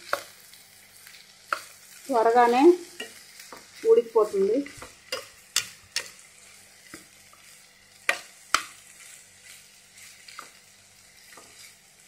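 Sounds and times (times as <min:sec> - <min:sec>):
faint sizzle: 0:00.0 - 0:12.0
spoon knocking against pan: 0:08.0 - 0:08.8.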